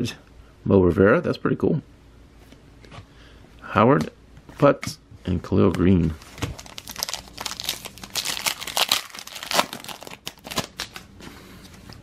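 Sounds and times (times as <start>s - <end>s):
foil wrapper tearing and crinkling: 6.2s - 11.1s.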